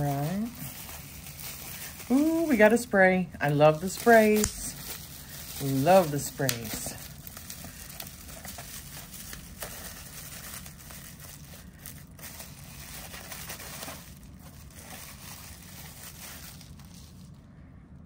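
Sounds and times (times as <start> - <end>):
bubble wrap crinkling: 0.0 - 17.6.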